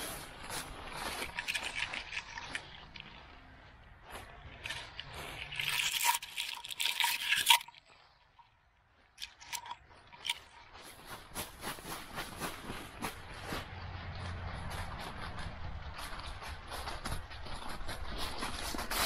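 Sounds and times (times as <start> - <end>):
footsteps crunching through leaves: 0.0 - 5.6, 9.8 - 19.0
dry leaves rustling: 0.0 - 6.1, 9.8 - 19.0.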